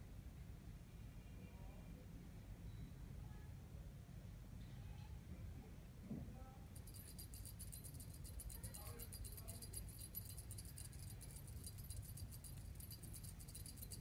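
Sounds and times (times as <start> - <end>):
fast jingling of cat toy: 6.8 - 14.0.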